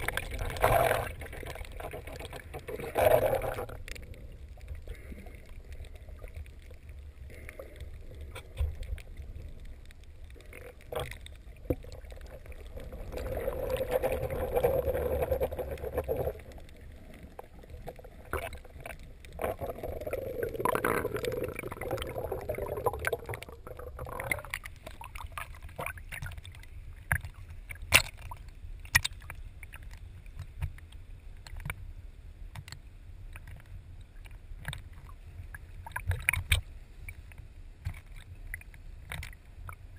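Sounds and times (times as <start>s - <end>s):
low underwater rumble: 0.0s - 28.9s
sharp underwater clicks: 0.0s - 31.8s, 32.5s - 39.9s
water gurgling: 0.0s - 31.8s, 33.3s - 39.9s.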